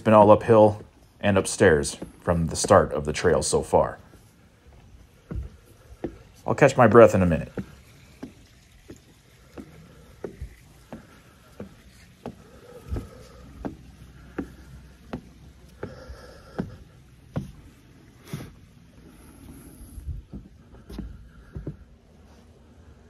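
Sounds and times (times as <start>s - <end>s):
footsteps on wooden stairs: 0.0s - 23.0s
heavy breathing: 9.2s - 23.0s.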